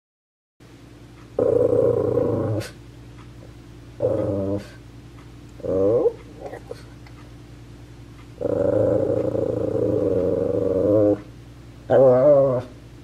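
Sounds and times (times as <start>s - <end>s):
steady low hum: 0.6s - 13.0s
dog whining: 4.0s - 4.8s, 5.6s - 6.8s, 8.4s - 11.3s, 11.9s - 12.8s.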